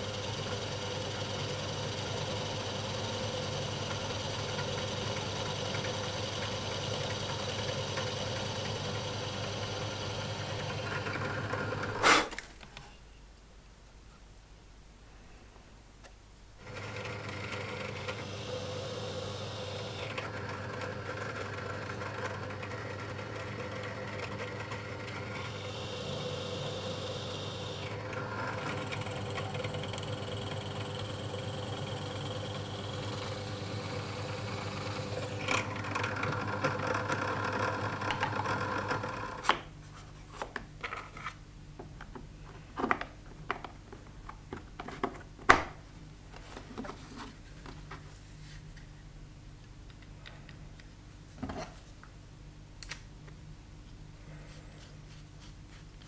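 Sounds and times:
drill press boring into wood: 16.6 - 23.5, 25.0 - 39.5.

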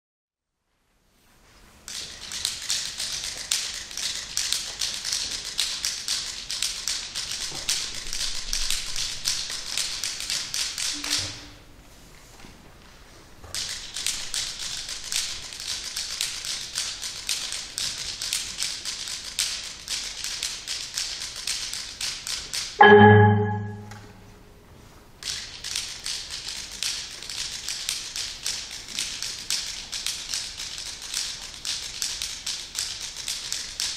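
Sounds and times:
percussion clicks and taps: 13.5 - 24.2.

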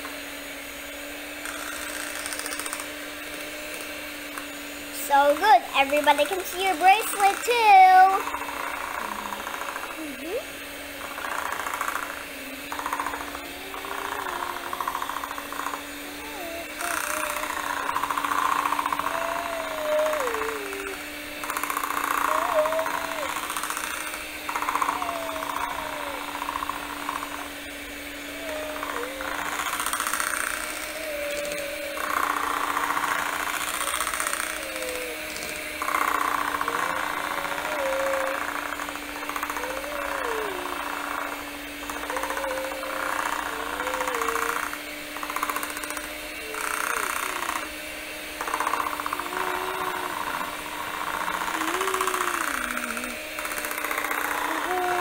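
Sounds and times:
electric hand mixer running: 0.0 - 55.0.

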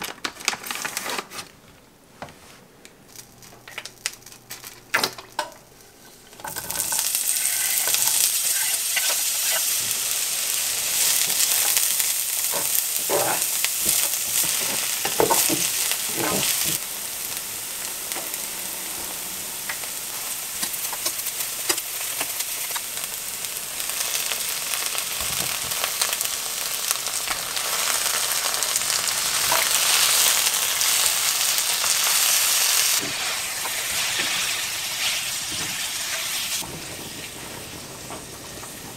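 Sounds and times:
green onions sizzling in oil: 4.0 - 38.9
wooden spatula scraping pan: 12.5 - 16.7.

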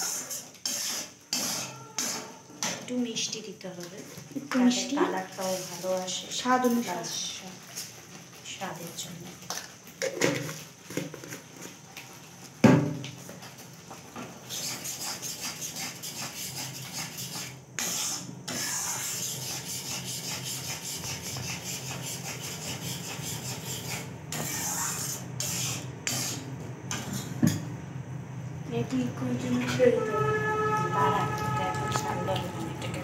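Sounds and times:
paste sizzling: 0.0 - 2.8, 3.9 - 12.6, 14.4 - 27.0
spatula scraping a wok: 0.0 - 2.9, 4.1 - 11.8, 14.4 - 27.4.

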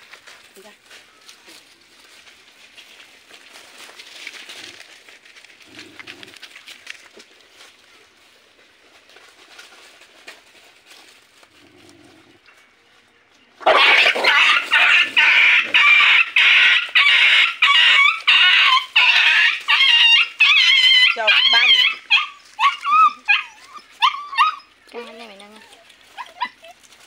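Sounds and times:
faint ticks and rustles: 0.0 - 13.5, 21.8 - 27.0
puppy yelping: 13.6 - 27.0.

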